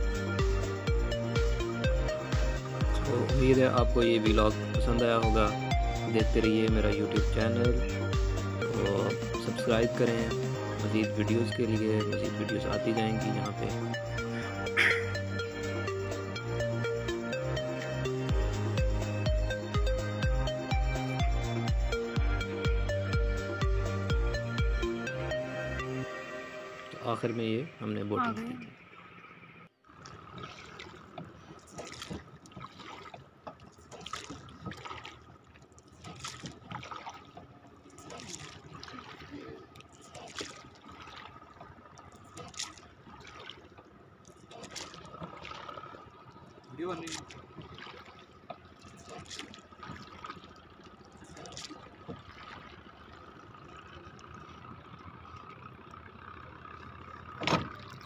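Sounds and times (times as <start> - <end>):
water splashing around a rowboat: 0.0 - 58.0.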